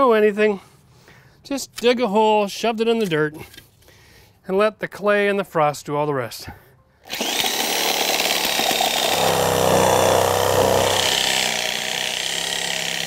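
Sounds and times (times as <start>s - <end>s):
reciprocating saw cutting wood: 7.1s - 13.0s.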